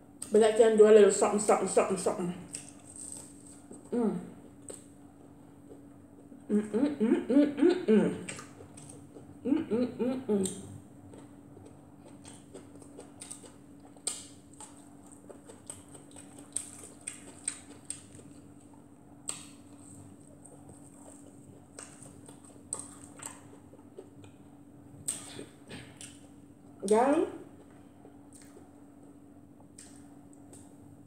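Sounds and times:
low hum: 0.0 - 31.0.

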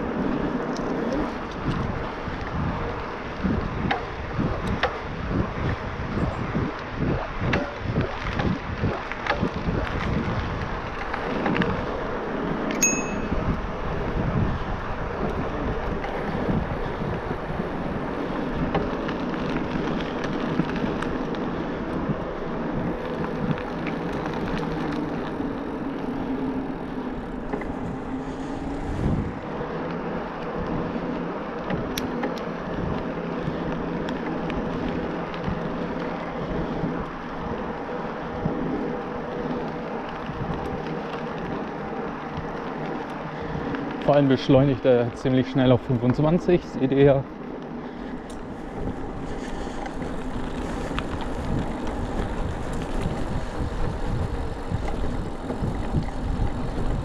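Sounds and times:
bike drivetrain noise: 0.0 - 57.0
bike tyre rumble: 0.0 - 57.0
wind on microphone: 0.0 - 57.0.

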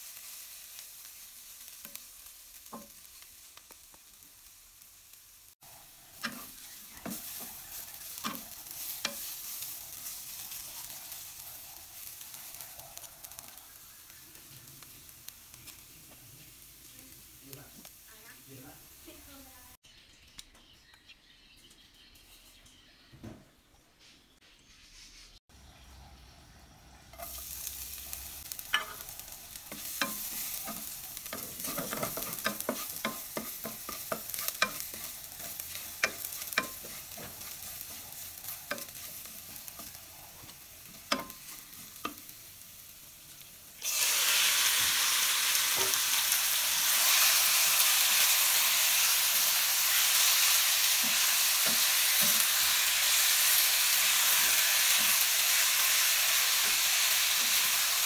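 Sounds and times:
chicken frying loudly: 0.0 - 19.8, 25.6 - 58.0
garlic sizzling in oil: 0.0 - 19.8, 27.0 - 58.0
spatula scraping a wok: 5.7 - 13.7, 27.0 - 42.2.

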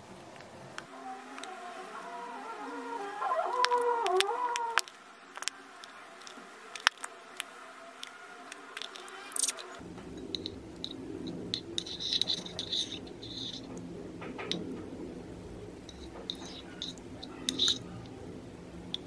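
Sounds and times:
small clicks: 3.5 - 9.8
spoon stirring wet glue: 10.3 - 13.8, 15.9 - 18.2.

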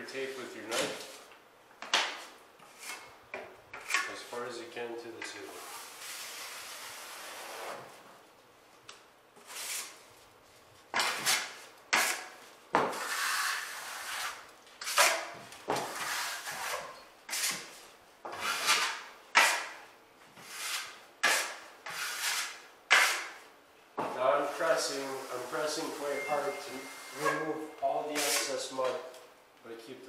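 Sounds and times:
taping knife scraping drywall: 2.6 - 3.1, 10.9 - 19.8, 20.4 - 23.5.

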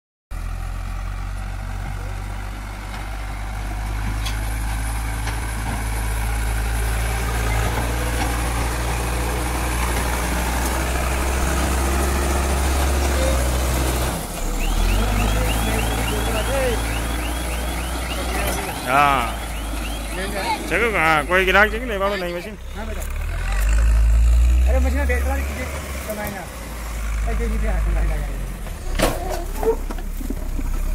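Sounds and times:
diesel engine running: 0.3 - 30.9
chirping reverse alarm: 14.4 - 21.7.

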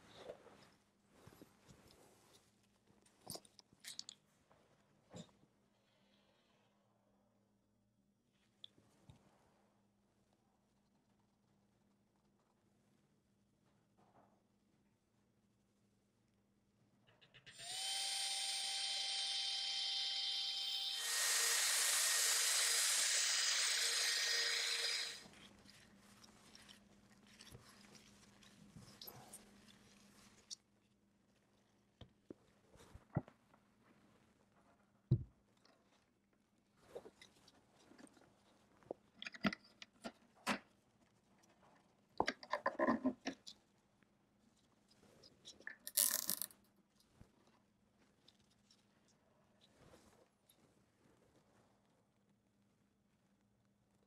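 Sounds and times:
power drill mixing paddle whine: 17.5 - 25.3.

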